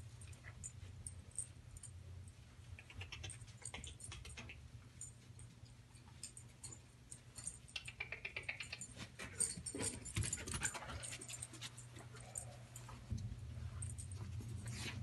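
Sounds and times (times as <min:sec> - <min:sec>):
dog collar tags jingling: 0:03.2 - 0:08.0, 0:08.6 - 0:14.9.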